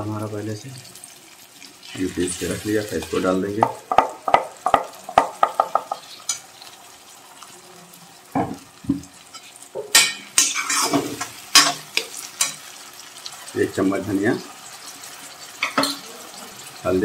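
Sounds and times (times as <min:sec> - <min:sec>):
faint sizzling: 0:00.0 - 0:17.0
spatula scraping metal pan: 0:09.2 - 0:12.7
metal spatula clinking on metal: 0:09.4 - 0:12.7, 0:15.6 - 0:16.0.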